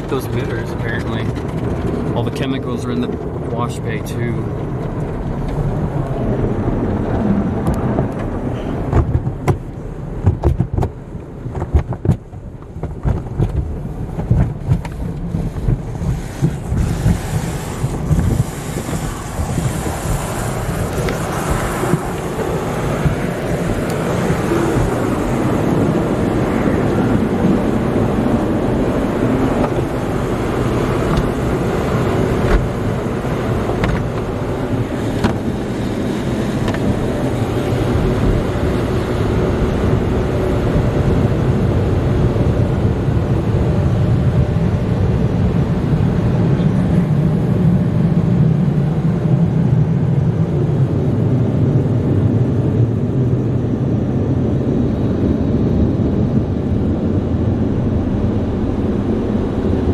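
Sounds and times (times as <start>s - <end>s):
cloth sweeping over car body: 14.7s - 22.8s
water spraying: 15.2s - 39.1s.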